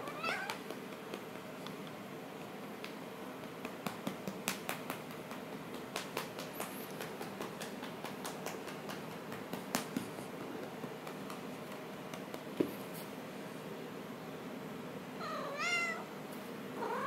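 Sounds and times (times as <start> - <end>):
hand patting cat fur: 0.0 - 13.2.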